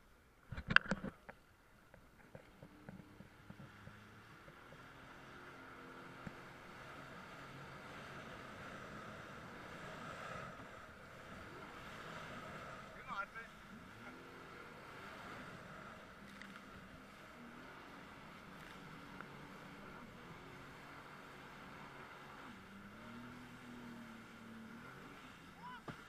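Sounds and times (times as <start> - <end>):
jet ski engine: 0.2 - 26.0
water and wind rushing: 2.4 - 26.0
small clicks: 16.3 - 16.7.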